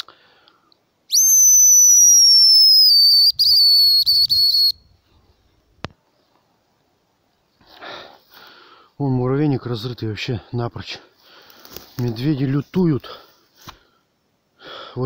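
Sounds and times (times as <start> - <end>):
high bird call whistle: 1.1 - 4.9.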